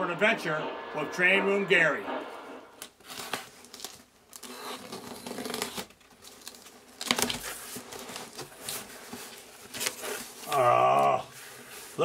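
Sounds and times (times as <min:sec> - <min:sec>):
tape crinkling: 0:05.1 - 0:08.8.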